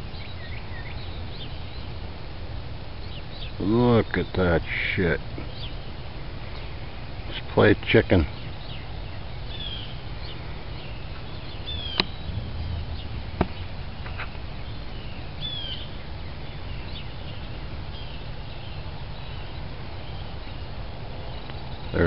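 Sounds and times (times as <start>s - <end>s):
small birds chirping: 0.0s - 22.0s
steady low rumble: 0.0s - 22.0s
downward-sliding bird calls: 8.2s - 12.3s, 12.9s - 22.0s
sharp clicks: 12.0s - 12.2s.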